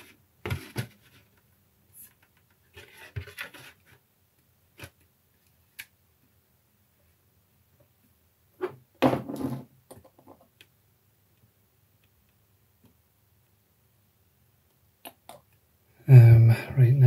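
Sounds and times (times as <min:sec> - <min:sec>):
plastic parts clicking and knocking: 0:09.0 - 0:10.7.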